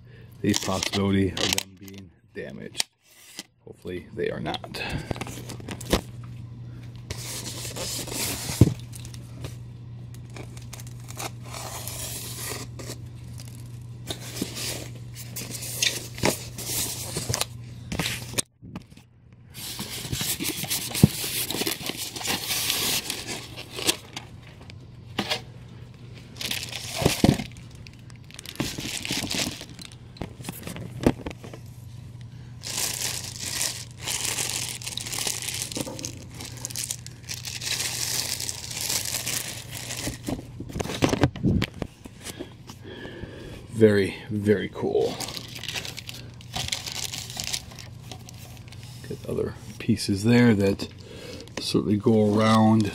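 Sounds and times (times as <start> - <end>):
steady low hum: 0.0 - 52.9
plastic wrap crinkling: 0.4 - 2.0, 26.2 - 31.5, 32.6 - 41.2, 45.0 - 48.9
styrofoam scraping and rubbing: 19.5 - 24.0.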